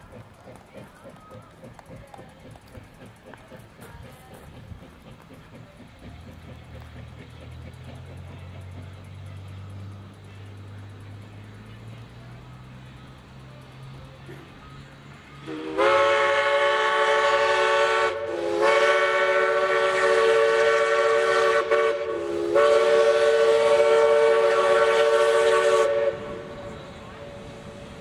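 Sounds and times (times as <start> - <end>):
steam locomotive whistle blasts: 14.6 - 27.8.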